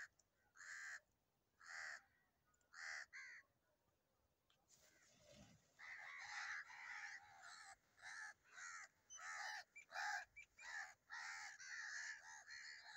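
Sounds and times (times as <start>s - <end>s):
crows cawing: 0.6s - 1.0s, 1.6s - 2.1s, 2.7s - 3.4s, 5.8s - 12.9s.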